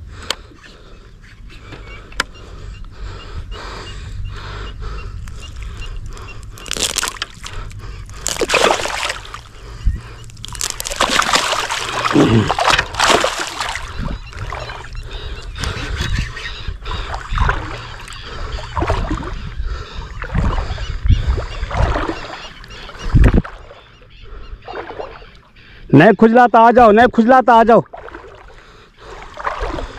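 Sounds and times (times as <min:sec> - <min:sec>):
marsh water sloshing and splashing: 0:05.2 - 0:25.8, 0:27.8 - 0:29.9.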